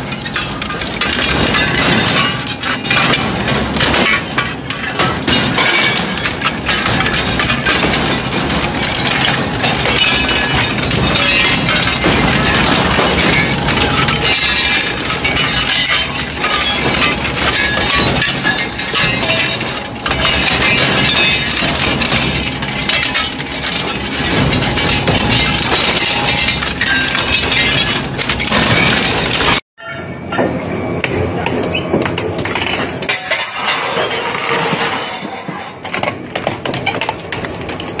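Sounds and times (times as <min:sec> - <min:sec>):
metal shredder crushing metal: 0:00.0 - 0:29.6.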